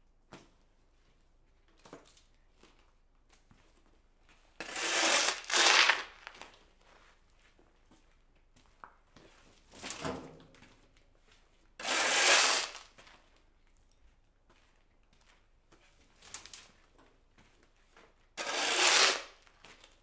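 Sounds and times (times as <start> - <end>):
shovel scraping concrete: 4.6 - 6.1, 11.8 - 12.8, 18.4 - 19.4.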